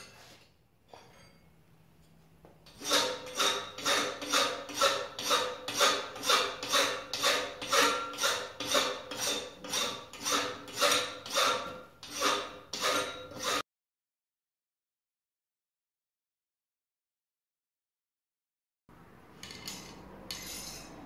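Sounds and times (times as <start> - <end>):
faint metallic ring: 0.9 - 2.2
hand file rasping on metal: 2.7 - 13.6.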